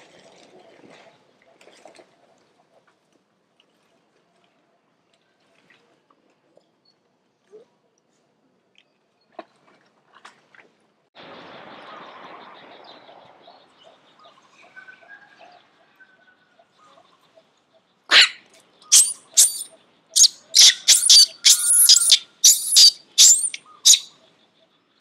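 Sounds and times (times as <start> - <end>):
baby monkeys squealing: 18.1 - 24.1.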